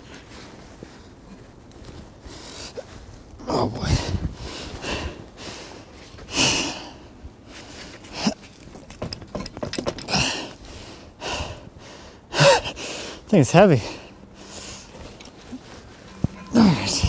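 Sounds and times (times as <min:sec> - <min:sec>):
man breathing hard: 0:02.2 - 0:02.9, 0:03.8 - 0:08.4, 0:10.0 - 0:15.7.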